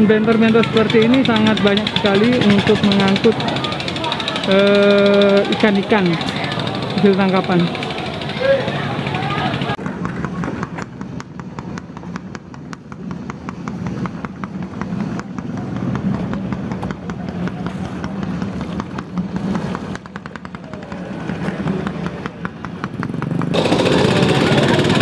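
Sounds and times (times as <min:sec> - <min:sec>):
faint voices: 0:00.0 - 0:10.8
loud busy noise: 0:00.0 - 0:25.0
small engine running with ticking: 0:00.0 - 0:25.0.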